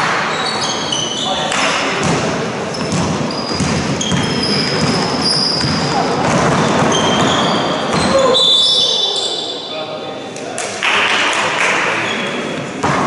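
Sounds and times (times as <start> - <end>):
sneakers squeaking on floor: 0.0 - 9.8, 12.0 - 13.0
echoing hubbub with voices: 0.0 - 13.0
basketball dribbling thuds: 2.0 - 8.2.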